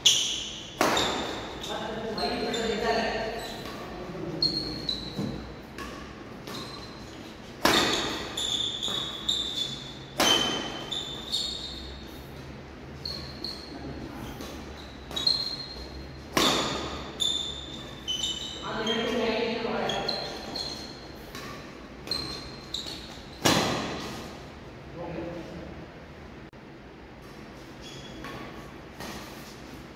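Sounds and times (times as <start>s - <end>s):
shoes squeaking on court: 0.0s - 24.4s, 27.2s - 29.9s
racket striking shuttlecock: 0.8s - 1.5s, 7.6s - 9.2s, 10.1s - 10.9s, 16.3s - 17.1s.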